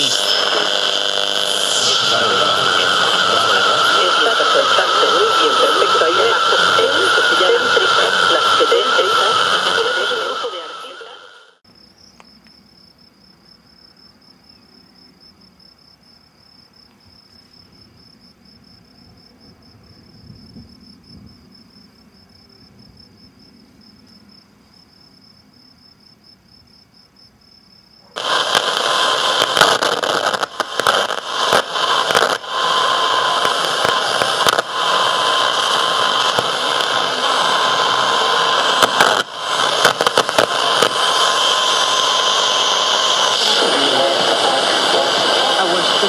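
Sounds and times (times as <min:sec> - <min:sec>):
crackling radio static: 0:00.0 - 0:11.6, 0:28.2 - 0:46.0
steady high-pitched whine: 0:00.0 - 0:25.7, 0:28.0 - 0:46.0.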